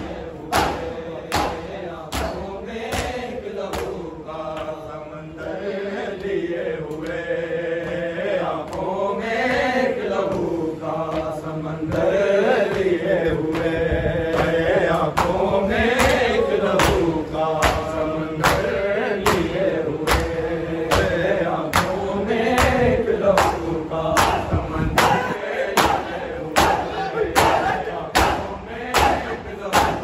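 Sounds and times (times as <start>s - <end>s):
men chanting in unison: 0.0s - 30.0s
hand slaps on bare chests: 0.5s - 4.8s, 14.4s - 30.0s.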